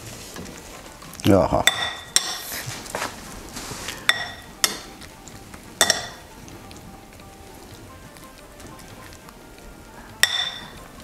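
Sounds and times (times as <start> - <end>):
ladle clinking against glass bowl: 4.1 - 4.9, 5.8 - 6.2, 10.2 - 10.8.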